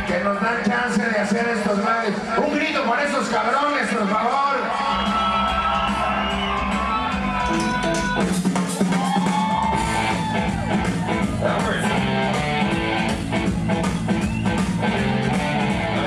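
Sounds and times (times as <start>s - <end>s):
loud amplified music with guitar: 4.0s - 16.0s.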